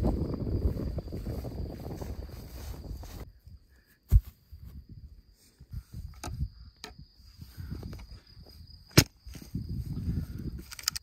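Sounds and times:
footsteps in grass: 0.0s - 6.1s, 7.2s - 10.7s
insect trill: 0.0s - 11.0s
stones and branches clicking: 10.6s - 11.0s.

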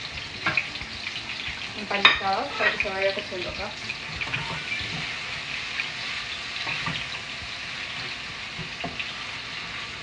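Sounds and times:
cutlets frying in pan: 0.0s - 10.0s
onions sizzling in hot oil: 0.0s - 10.0s
wooden spoon knocking on pan: 1.9s - 2.8s, 6.6s - 7.1s, 8.0s - 9.1s.

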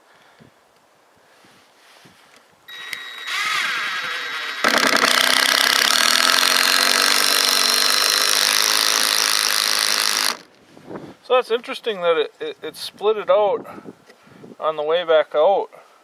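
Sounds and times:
cordless drill driving screw: 2.7s - 10.5s.

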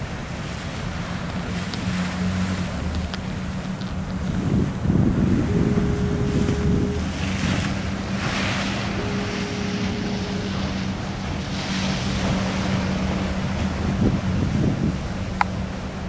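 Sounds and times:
ocean surf breaking: 0.0s - 16.0s
steady low hum: 0.0s - 16.0s
wind buffeting microphone: 0.0s - 16.0s
short higher tone: 5.2s - 7.3s, 8.0s - 11.0s.

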